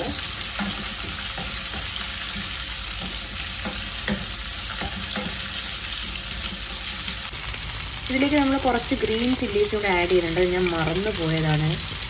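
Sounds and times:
vegetables sizzling in oil: 0.0s - 12.0s
wooden spoon knocking on pan: 0.6s - 5.4s.

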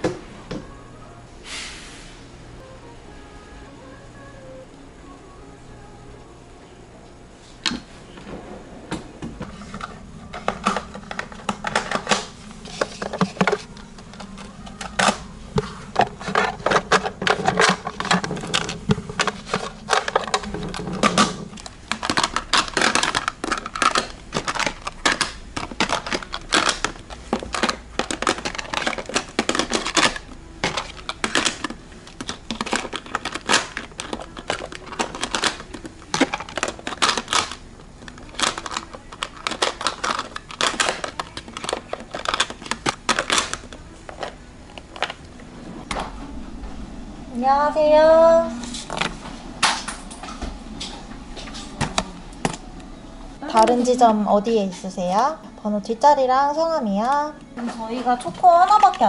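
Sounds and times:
small plastic items clicking: 9.8s - 45.2s.

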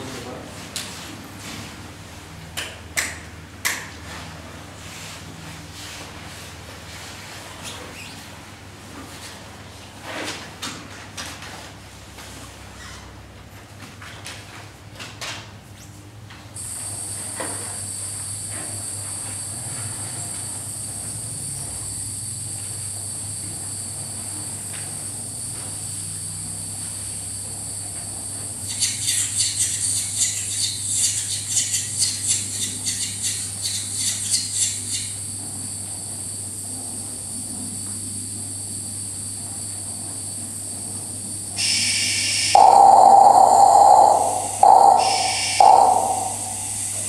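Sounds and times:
high electronic whines: 41.6s - 47.0s
low electronic hum: 42.6s - 47.0s
rapid high-pitched pulsing: 42.6s - 47.0s.

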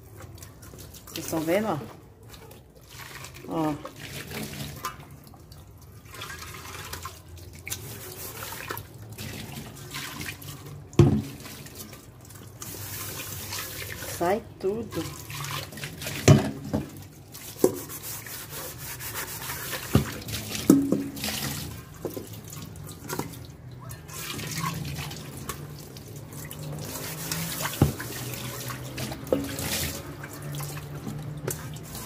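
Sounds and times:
sponge scrubbing pot: 0.0s - 32.0s
tap water splashing into pot: 0.2s - 14.3s, 14.9s - 18.2s, 19.5s - 32.0s
pot knocking: 20.7s - 21.2s.

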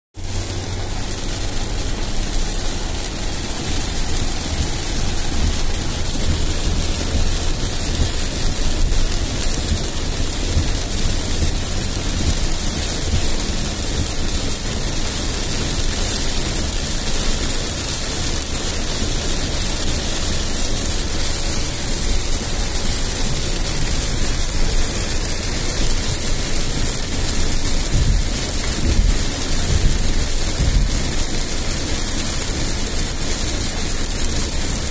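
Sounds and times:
car rumbling on wet road: 0.2s - 34.9s
heavy rain on car roof: 0.2s - 34.9s.

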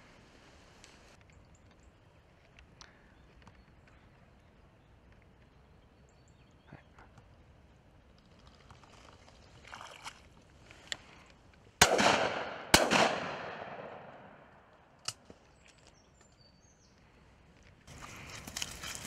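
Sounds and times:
shotgun shots with echo: 11.8s - 14.5s.

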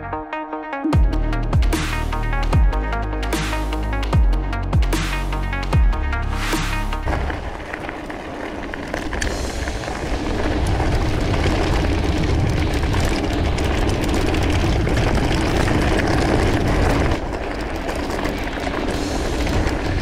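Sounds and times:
bike tyres rumbling on trail: 6.6s - 20.0s
wind noise on microphone: 7.1s - 20.0s.

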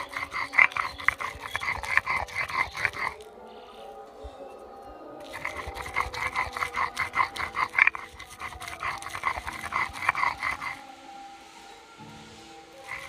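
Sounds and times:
stone pestle grating on slab: 0.0s - 3.2s, 5.3s - 10.8s.

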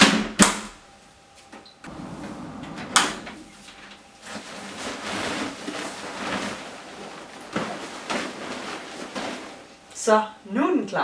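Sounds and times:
dryer door clicks: 1.8s - 3.5s
duvet rustling: 1.9s - 10.2s.

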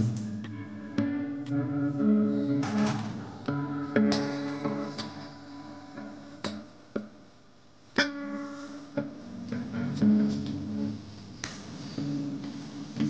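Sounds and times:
plucked guitar music: 0.0s - 7.3s, 8.0s - 13.0s.

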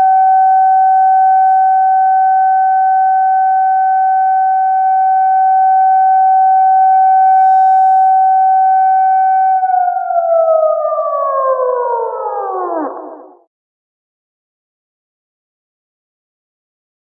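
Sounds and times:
siren steady tone: 0.0s - 13.5s.

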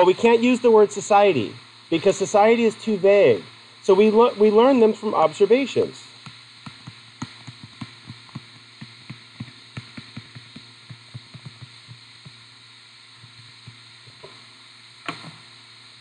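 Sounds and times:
faint electrical hum: 0.0s - 16.0s
stylus tapping on touchscreen: 6.3s - 12.4s.

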